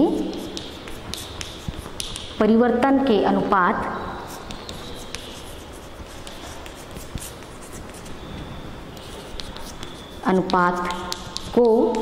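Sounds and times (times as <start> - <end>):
pen scratching handwriting: 0.0 - 2.4, 4.3 - 8.2, 8.9 - 12.0.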